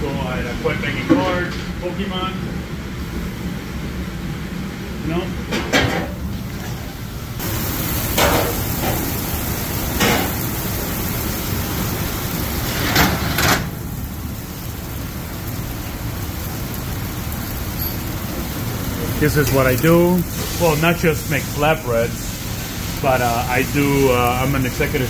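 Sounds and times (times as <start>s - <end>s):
kitchen ovens and ventilation: 0.0s - 25.0s
high hiss: 17.8s - 25.0s.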